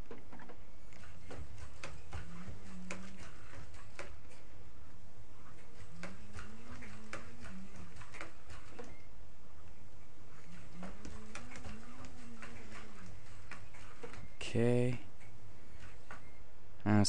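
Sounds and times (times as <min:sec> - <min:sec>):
steady low hum: 0:00.0 - 0:17.0
faint wavering whine: 0:04.3 - 0:17.0.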